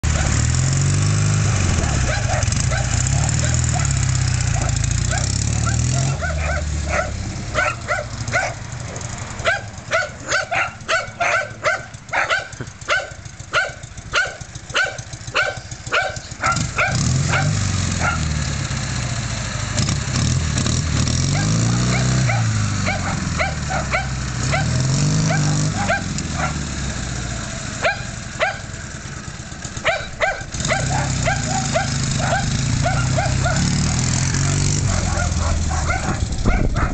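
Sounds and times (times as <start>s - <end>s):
motorcycle engine running: 0.0s - 36.9s
dog barking: 0.1s - 0.4s, 1.8s - 18.3s, 21.3s - 26.6s, 27.8s - 28.7s, 29.8s - 36.9s.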